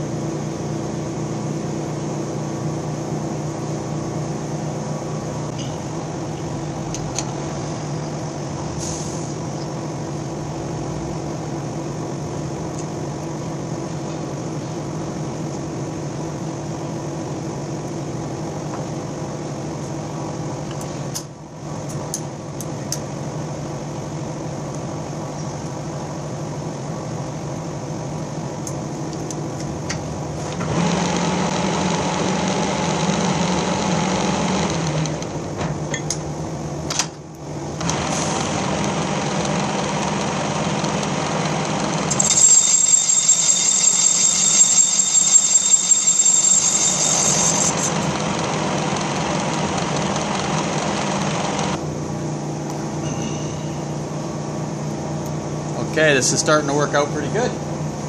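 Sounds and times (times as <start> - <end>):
high-pitched whine: 37.6 - 57.8.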